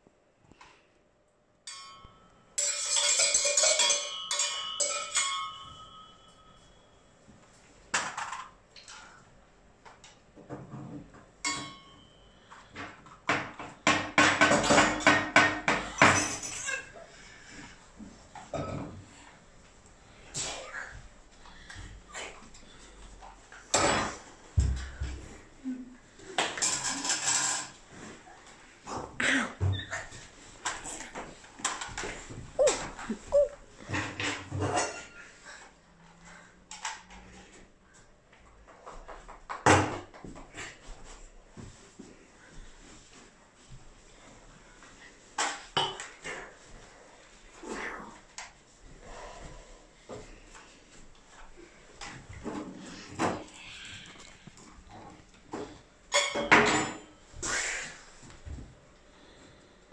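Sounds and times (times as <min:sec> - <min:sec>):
saucepan and spoons clattering: 0:01.7 - 0:06.4, 0:11.4 - 0:17.0, 0:56.1 - 0:57.2
bowl ringing: 0:01.7 - 0:07.1.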